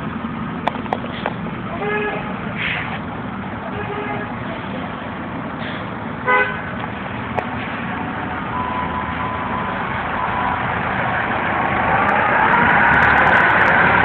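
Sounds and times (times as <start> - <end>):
city street traffic: 0.0 - 14.0
vehicle horn honk: 3.7 - 4.3, 6.2 - 6.7.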